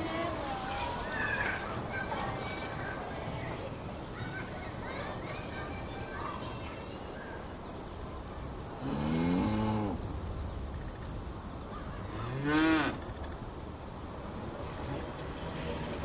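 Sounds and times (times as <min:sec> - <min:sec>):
steady low background noise: 0:00.0 - 0:16.0
cows mooing: 0:12.2 - 0:13.0.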